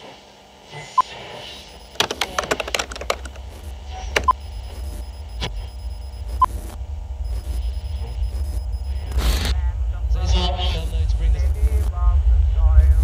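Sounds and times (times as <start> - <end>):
low steady hum: 1.6 - 13.0
computer keyboard typing: 1.7 - 3.6, 4.2 - 5.3.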